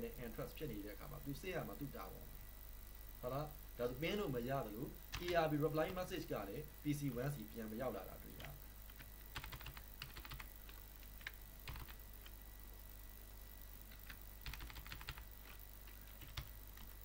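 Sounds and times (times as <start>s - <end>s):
keyboard typing: 5.1s - 6.0s, 8.4s - 12.4s, 13.9s - 17.0s.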